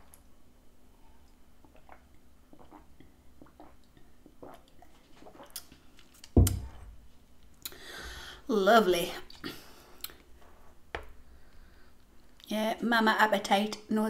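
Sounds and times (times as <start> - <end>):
drinking and swallowing sounds: 1.1 - 6.9.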